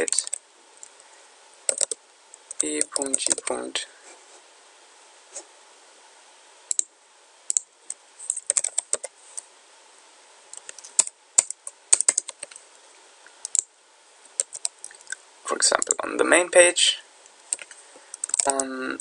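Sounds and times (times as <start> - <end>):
typing on computer keyboard: 1.7 - 3.4, 8.3 - 9.1, 10.6 - 12.6, 14.4 - 15.0, 17.5 - 18.6.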